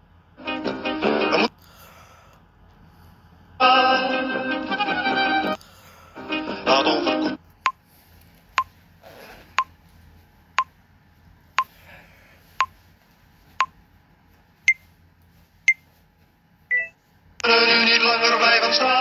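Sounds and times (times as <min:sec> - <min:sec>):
music: 0:00.4 - 0:01.5, 0:03.6 - 0:05.6, 0:06.2 - 0:07.4, 0:17.4 - 0:19.0
countdown timer beeps: 0:16.7 - 0:17.0.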